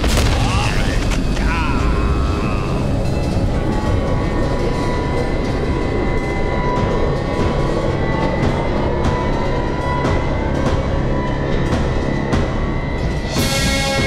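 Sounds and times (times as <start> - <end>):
rumbling din of charging army: 0.0 - 10.5
music with sustained tones: 0.0 - 14.0.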